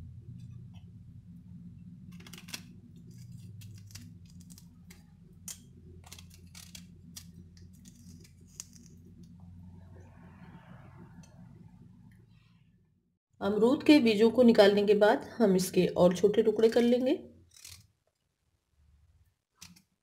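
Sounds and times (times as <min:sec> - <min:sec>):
faint low hum: 0:00.0 - 0:17.5
knife clicking and scraping fruit: 0:02.2 - 0:09.0.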